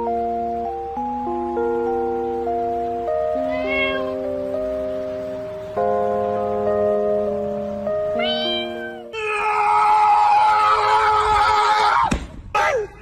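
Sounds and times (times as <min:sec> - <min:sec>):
background music with held notes: 0:00.0 - 0:09.2
animal crying: 0:03.4 - 0:04.2, 0:08.2 - 0:11.1.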